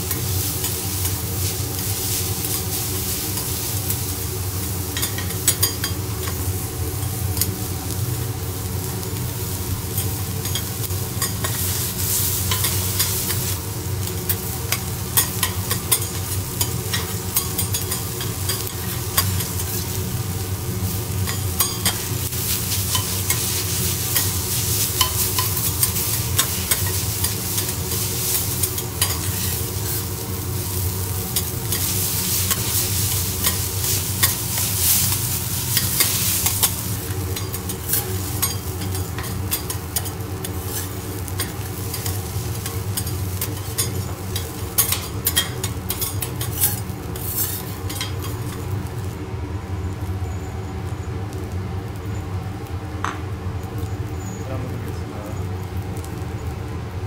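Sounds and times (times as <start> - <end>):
rice sizzling on a griddle: 0.0 - 57.0
metal spatulas clacking on griddle: 14.3 - 19.6, 21.3 - 22.1, 28.6 - 29.5, 35.8 - 40.8, 41.4 - 48.3.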